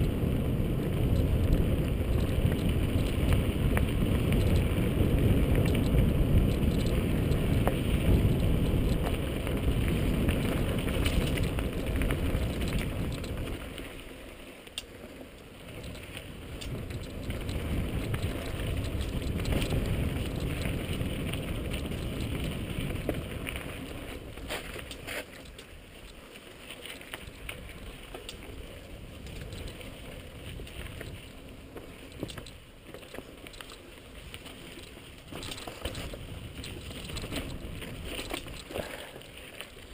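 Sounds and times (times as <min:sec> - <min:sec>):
wind rushing over microphone: 0:00.0 - 0:13.8, 0:15.6 - 0:25.6, 0:34.1 - 0:39.9
mountain bike rattling over dirt: 0:00.0 - 0:39.9.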